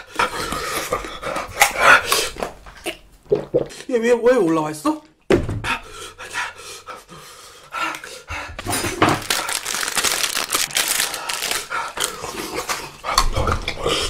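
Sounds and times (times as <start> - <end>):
man panting: 5.6 - 8.7.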